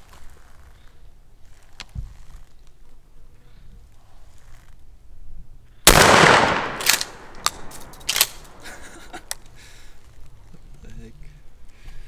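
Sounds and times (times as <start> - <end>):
shotgun blast: 5.8 - 8.6.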